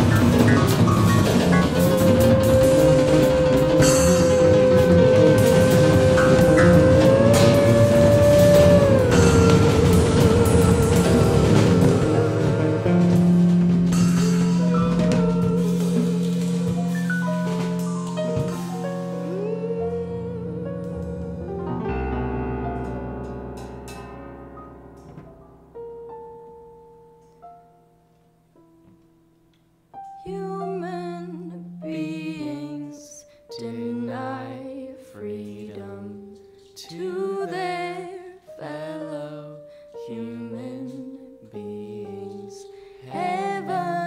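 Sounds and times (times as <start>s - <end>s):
person singing: 0.0s - 22.1s, 30.2s - 44.0s
drum kit playing: 0.0s - 25.6s
long held low note: 0.0s - 25.7s
higher melody notes: 0.0s - 27.8s
jazz piano: 0.0s - 44.0s.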